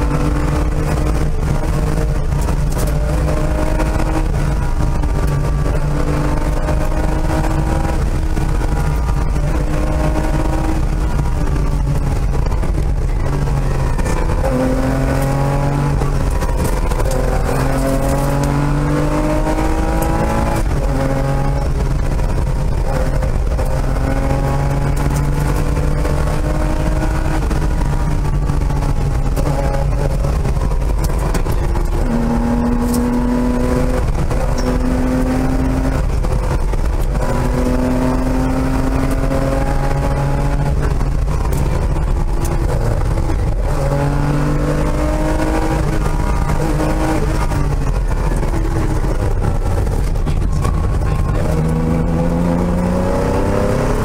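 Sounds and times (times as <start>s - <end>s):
car engine revving: 0.0s - 54.0s.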